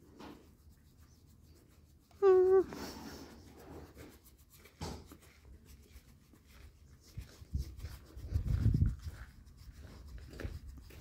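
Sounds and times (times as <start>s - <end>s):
hand rubbing animal coat: 0.0s - 11.0s
knock: 4.8s - 5.1s.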